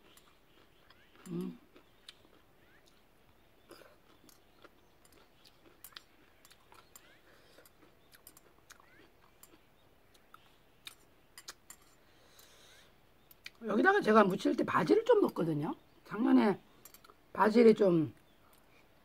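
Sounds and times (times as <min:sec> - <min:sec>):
chewing: 0:00.0 - 0:12.6.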